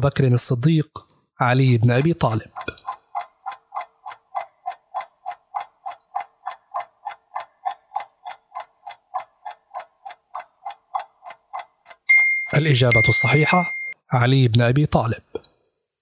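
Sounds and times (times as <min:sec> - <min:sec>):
countdown timer ticking: 0:01.7 - 0:14.0.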